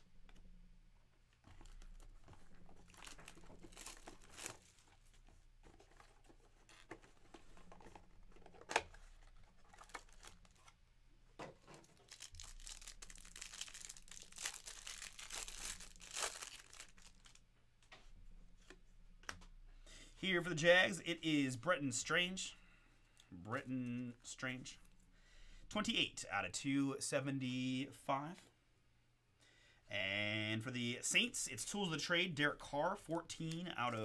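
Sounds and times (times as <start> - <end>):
plastic wrapping torn and crinkled: 1.5 - 5.0, 8.6 - 10.8, 11.7 - 17.4.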